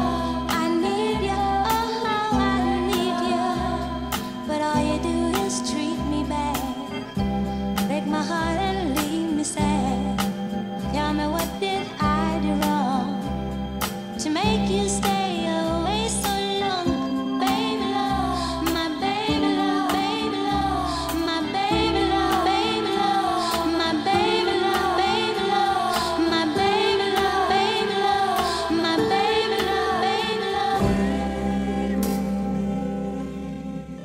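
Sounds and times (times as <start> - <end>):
person singing: 0.0 - 7.2, 14.2 - 34.0
held bass notes: 16.9 - 34.0.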